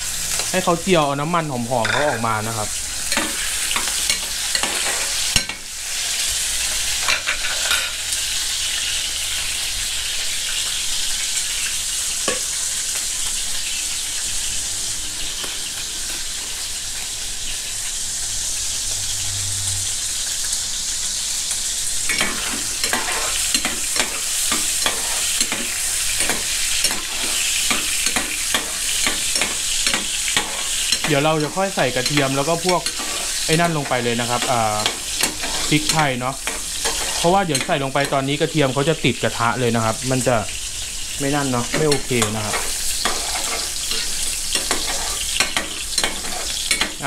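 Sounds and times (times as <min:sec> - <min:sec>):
fat sizzling in hot oil: 0:00.0 - 0:47.0
metal spatula scraping a pan: 0:03.0 - 0:06.1, 0:06.7 - 0:08.1, 0:22.0 - 0:38.2, 0:41.7 - 0:47.0.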